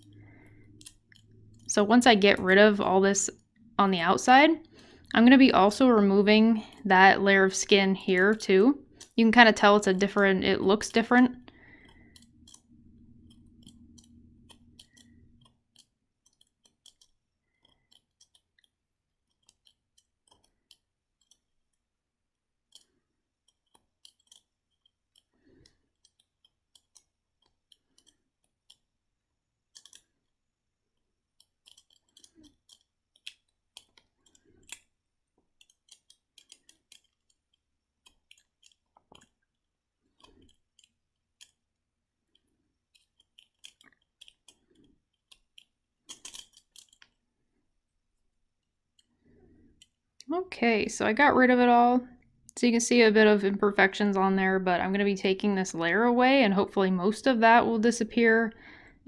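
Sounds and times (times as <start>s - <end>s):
metal cuticle cutter snipping: 12.0s - 21.5s, 31.4s - 34.9s.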